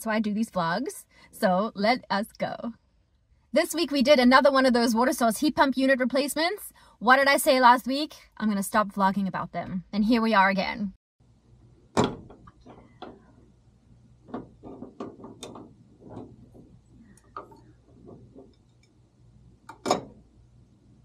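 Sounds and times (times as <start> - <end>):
loud knocks: 12.0 - 13.2.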